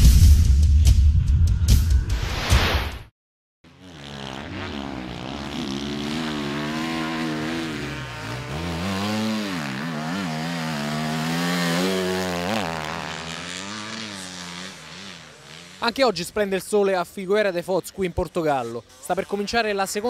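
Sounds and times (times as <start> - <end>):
motorcycle engine revving: 3.6 - 16.6.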